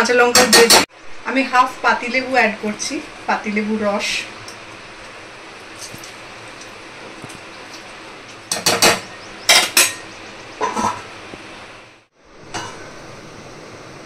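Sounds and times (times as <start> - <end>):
steel cookware clattering: 8.5 - 11.1.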